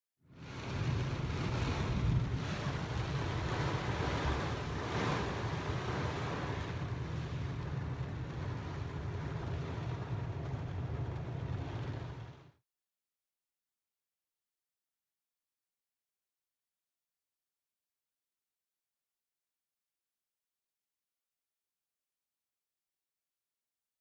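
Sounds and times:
wind: 0:00.2 - 0:12.6
heavy rain: 0:00.4 - 0:12.6.

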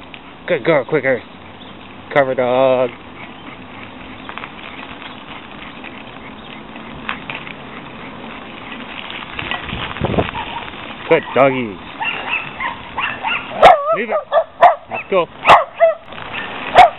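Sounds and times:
bicycle rolling on pavement: 0:00.0 - 0:16.9
bicycle clicks and rattles: 0:01.5 - 0:13.6, 0:15.8 - 0:16.9.

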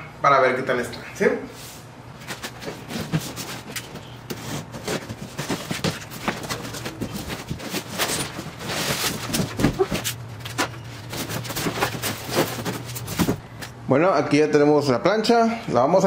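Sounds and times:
cardboard box opening: 0:02.3 - 0:13.4
foam block scraping: 0:02.3 - 0:13.4.

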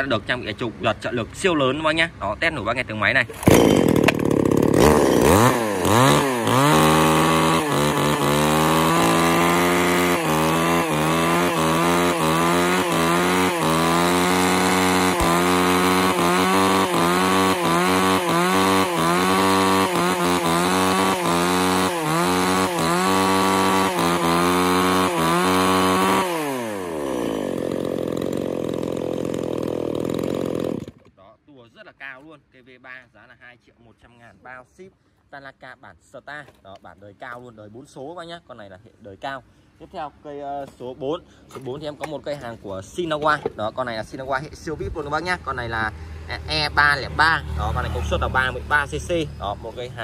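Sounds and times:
chainsaw idling: 0:03.3 - 0:31.2
chainsaw revving: 0:03.3 - 0:31.2.

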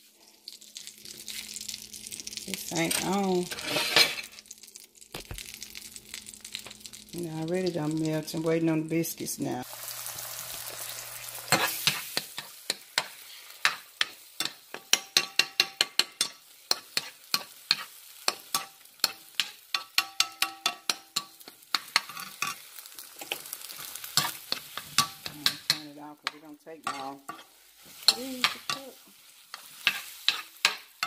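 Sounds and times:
eggs sizzling: 0:00.0 - 0:31.0
spoon tapping and scraping a pan: 0:11.5 - 0:31.0.

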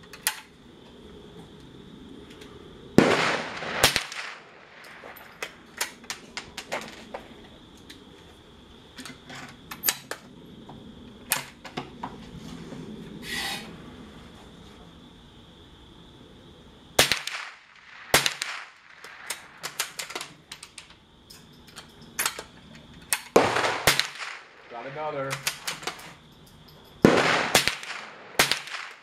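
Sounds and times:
gunshot crack: 0:03.0 - 0:04.4, 0:27.0 - 0:29.0.

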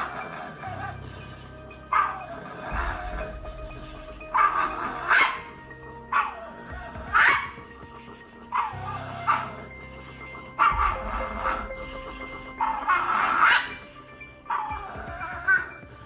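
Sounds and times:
dog snarling and barking: 0:01.9 - 0:03.1, 0:04.3 - 0:07.7, 0:08.5 - 0:09.7, 0:10.6 - 0:11.7, 0:12.5 - 0:13.9.

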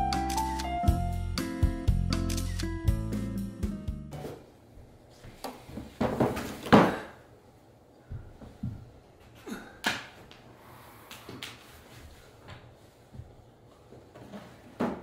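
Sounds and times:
objects knocking on wooden floor: 0:06.0 - 0:07.0.

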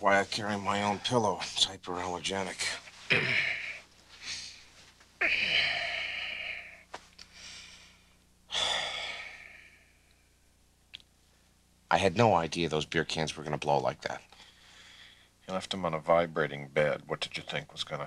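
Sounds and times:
man sighing heavily: 0:08.5 - 0:09.7.

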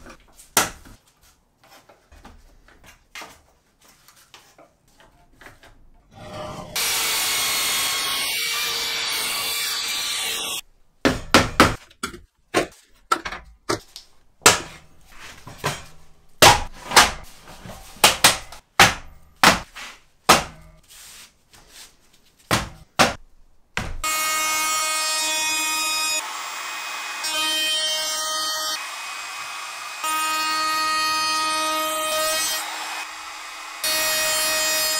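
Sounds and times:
power tool running: 0:06.4 - 0:10.6, 0:24.0 - 0:34.9.

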